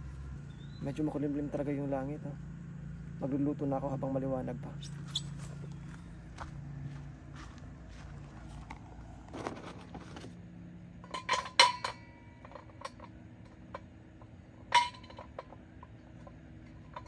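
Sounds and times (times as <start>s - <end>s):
charcoal briquettes clinking: 11.0s - 17.0s.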